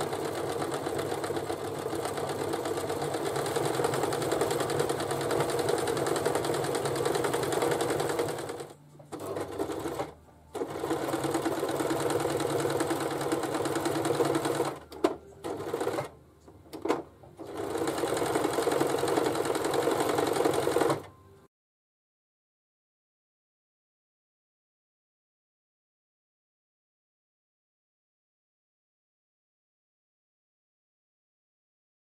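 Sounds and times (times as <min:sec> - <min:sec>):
sewing machine stitching: 0:00.0 - 0:21.1.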